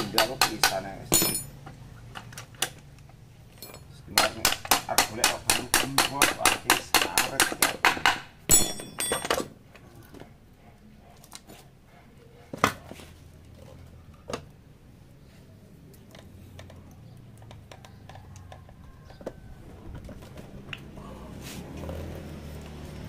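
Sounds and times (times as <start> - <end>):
metallic clicks of engine parts: 0.0 - 7.2
sharp knocks: 4.2 - 9.5.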